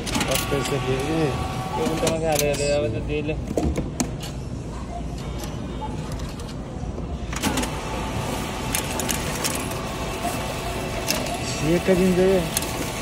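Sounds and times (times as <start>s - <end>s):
bill feeding into acceptor: 0.0s - 2.7s, 7.4s - 13.0s
cash machine clicks and handling: 0.0s - 2.8s, 5.2s - 13.0s
store hum: 0.0s - 13.0s.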